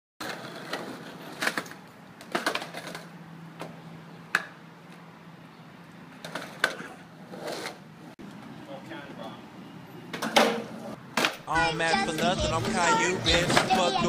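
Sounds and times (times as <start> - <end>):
skateboard clacking on concrete: 0.2 - 3.7, 6.2 - 7.8.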